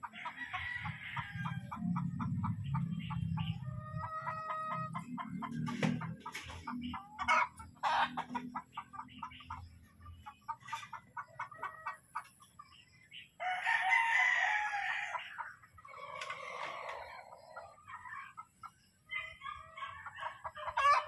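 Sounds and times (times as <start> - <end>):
roosters clucking: 0.0 - 21.0
rooster crowing: 0.1 - 1.8, 13.4 - 15.3.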